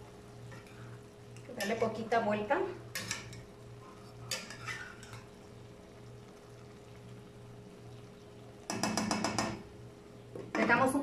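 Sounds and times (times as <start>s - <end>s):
steady low hum: 0.0s - 11.0s
metal spoon stirring rice: 4.3s - 5.3s.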